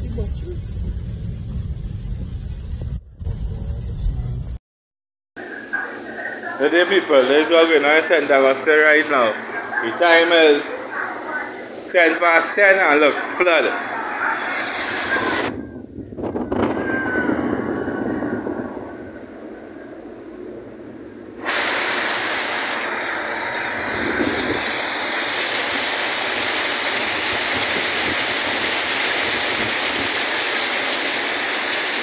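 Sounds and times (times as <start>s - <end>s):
rushing floodwater: 5.4s - 15.5s, 21.4s - 32.0s
heavy rain: 5.4s - 32.0s.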